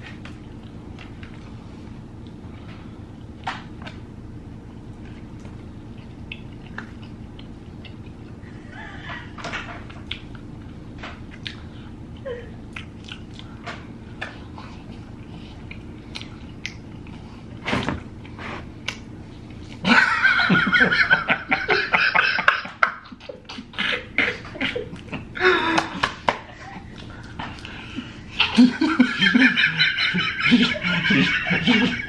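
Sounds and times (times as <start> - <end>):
mouth clicks and smacks: 6.2 - 8.2, 10.0 - 10.5, 12.7 - 13.5
men laughing breathily: 8.4 - 9.5, 19.8 - 32.0.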